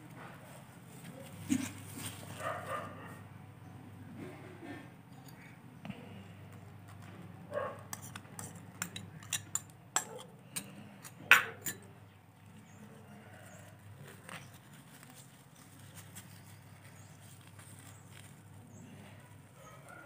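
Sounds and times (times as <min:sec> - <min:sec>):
metal spoon clinking against glass: 0:07.9 - 0:11.9.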